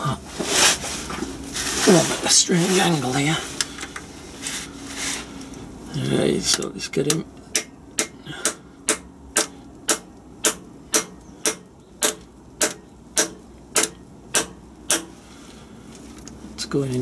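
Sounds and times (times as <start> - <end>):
hammer tapping metal: 6.5 - 15.1.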